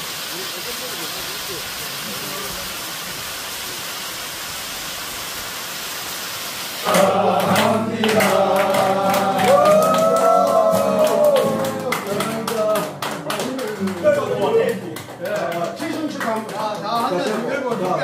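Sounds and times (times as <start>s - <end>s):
small waterfall rushing over rocks: 0.0s - 7.0s
men singing together: 6.8s - 12.8s
clapping along: 6.8s - 18.0s.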